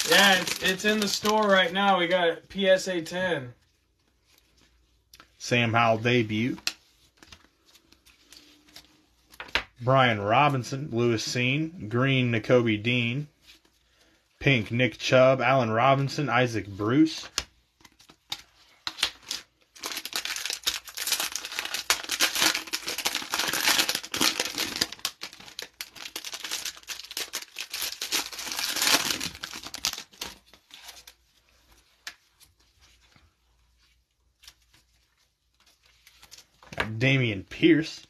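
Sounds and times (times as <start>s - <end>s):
plastic wrapper crinkling and tearing: 0.0s - 2.2s, 17.8s - 33.1s, 33.7s - 36.8s.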